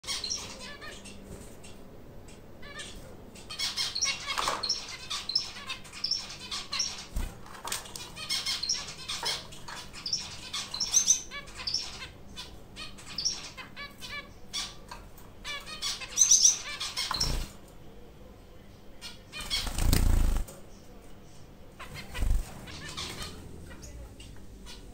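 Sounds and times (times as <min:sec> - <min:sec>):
finches nasal beeping calls: 0:08.2 - 0:14.8
wing flutters: 0:19.4 - 0:20.6, 0:21.9 - 0:23.8.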